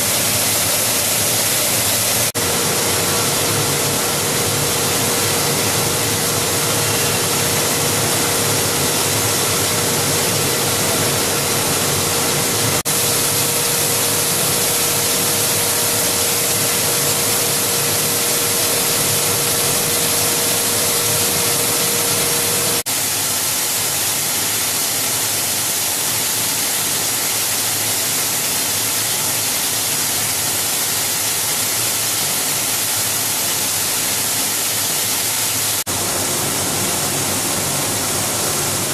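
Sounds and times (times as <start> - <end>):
steady hum: 0.0 - 22.9, 35.9 - 38.9
recycling machine line running: 0.0 - 38.9.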